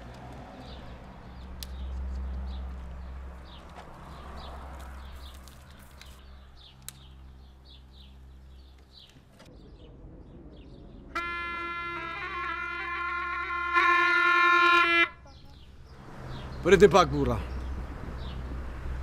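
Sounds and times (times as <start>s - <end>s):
birds chirping: 0.5s - 18.6s
shrill reed pipe note: 11.2s - 15.2s.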